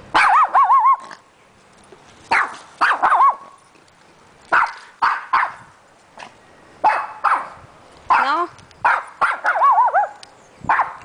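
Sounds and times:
small dog yapping: 0.1s - 1.2s, 2.3s - 3.6s, 4.5s - 5.6s, 6.2s - 11.0s.

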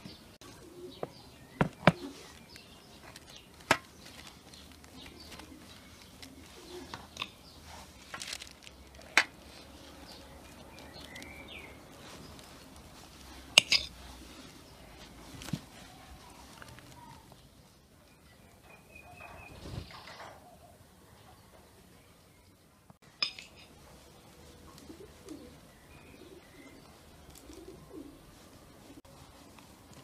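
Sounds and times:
birds calling: 0.0s - 17.6s, 23.2s - 30.0s
knife scraping and tapping: 13.6s - 14.0s.

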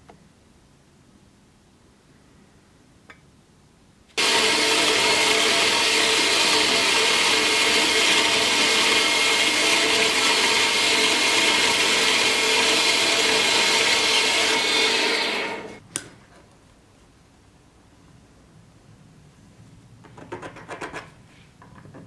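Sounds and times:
power saw cutting steel: 4.2s - 15.8s.

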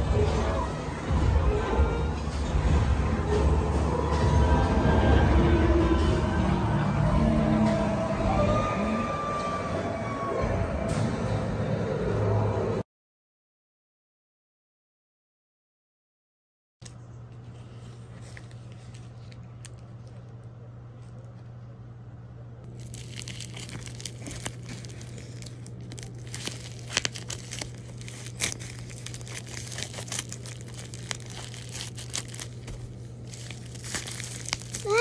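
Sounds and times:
low steady hum: 16.8s - 35.0s
bubble wrap crinkling: 18.0s - 20.5s, 22.7s - 35.0s
box handling noise: 22.7s - 35.0s.

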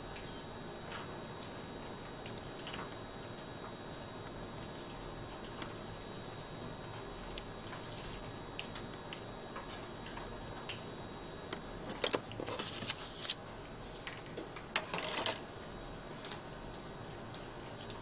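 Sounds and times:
paper sliding and rustling: 12.4s - 13.4s.

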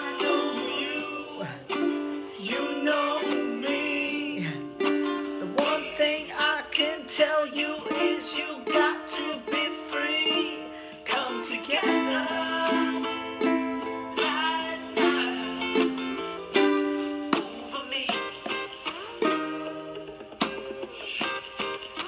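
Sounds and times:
woman singing: 0.0s - 16.1s
ukulele strumming: 0.0s - 22.0s.

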